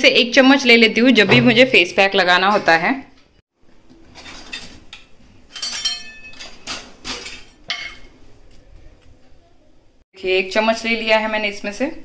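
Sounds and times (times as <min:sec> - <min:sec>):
steel utensils clattering: 0:05.5 - 0:08.0.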